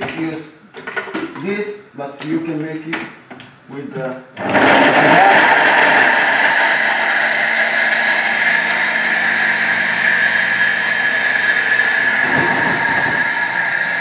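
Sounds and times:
blender grinding hard cheese: 0:04.4 - 0:14.0.

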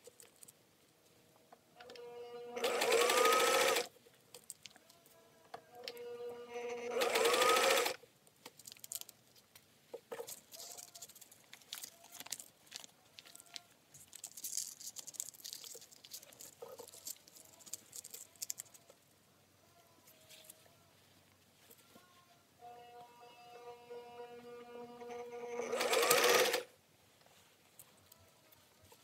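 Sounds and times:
sewing machine running: 0:02.6 - 0:03.9, 0:06.8 - 0:08.0, 0:24.9 - 0:26.7.

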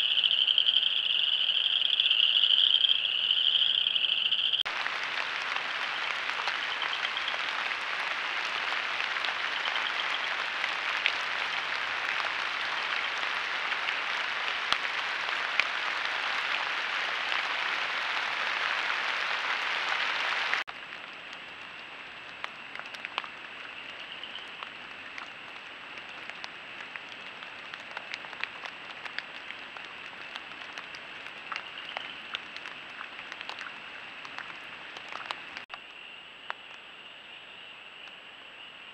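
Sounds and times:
high-pitched frog chorus: 0:00.0 - 0:16.6, 0:21.0 - 0:38.9.

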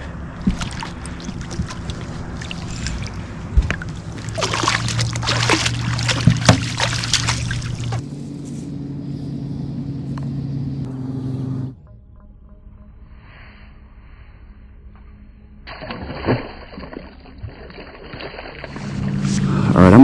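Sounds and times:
boat motor humming: 0:00.0 - 0:12.0, 0:16.6 - 0:20.0
fish splashing: 0:00.3 - 0:08.0, 0:15.7 - 0:19.3.

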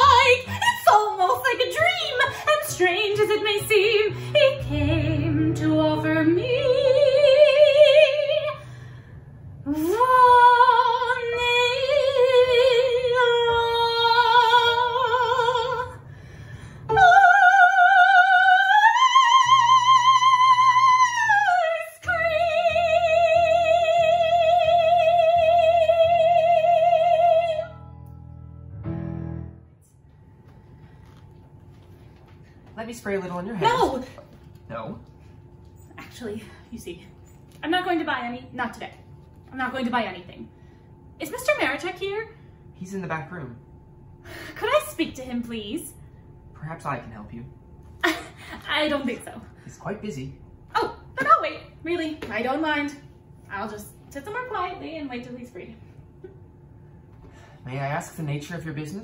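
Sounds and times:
woman singing soprano: 0:00.0 - 0:08.6, 0:09.7 - 0:16.0, 0:16.9 - 0:27.8.

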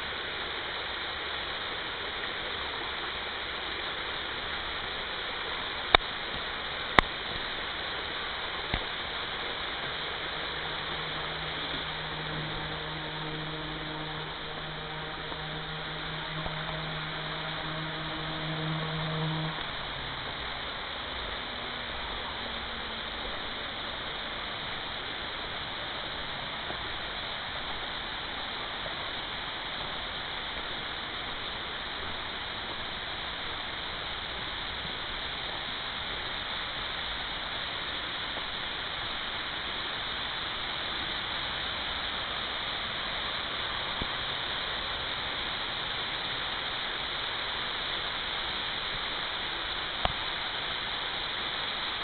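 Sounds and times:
stream water rushing: 0:00.0 - 0:52.0.

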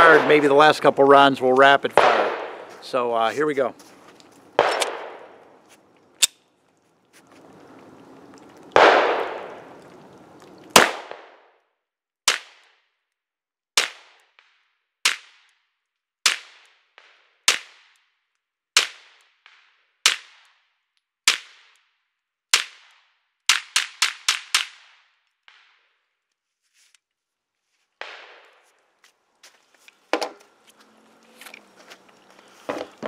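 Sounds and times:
pistol shots with echo: 0:00.0 - 0:00.8, 0:01.9 - 0:02.8, 0:04.6 - 0:05.4, 0:08.8 - 0:09.6, 0:10.8 - 0:11.4.

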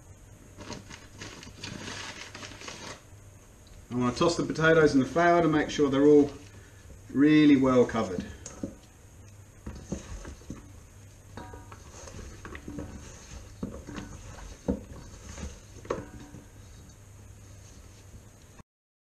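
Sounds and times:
metal bowl clinking: 0:11.3 - 0:16.6.

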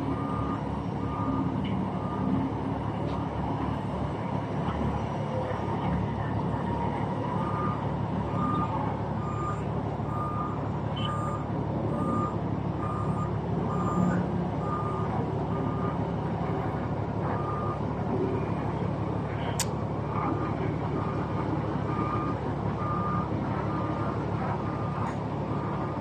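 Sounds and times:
low engine rumble: 0:00.0 - 0:26.0
reversing alarm beeping: 0:00.1 - 0:02.4, 0:07.4 - 0:18.6, 0:21.9 - 0:24.1.

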